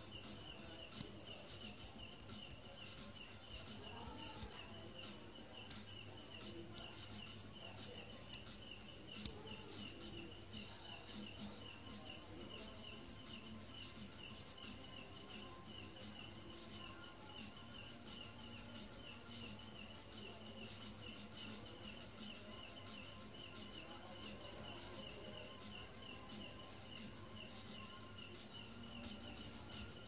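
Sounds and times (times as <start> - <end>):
insect chirping: 0.0 - 30.0
sharp clicks: 0.2 - 8.6.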